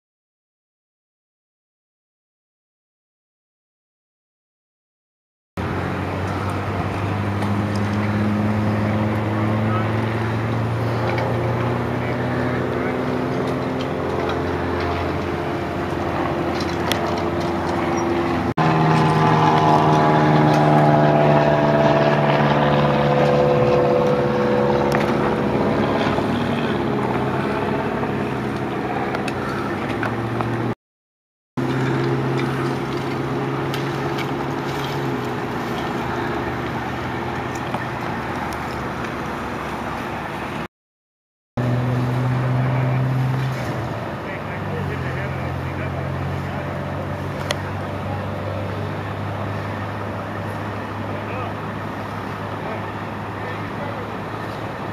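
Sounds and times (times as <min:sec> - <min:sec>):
steady engine hum: 0:05.6 - 0:30.8, 0:31.6 - 0:40.7, 0:41.6 - 0:54.9
vehicle passing close by: 0:05.6 - 0:30.8, 0:31.6 - 0:40.7, 0:41.6 - 0:54.9.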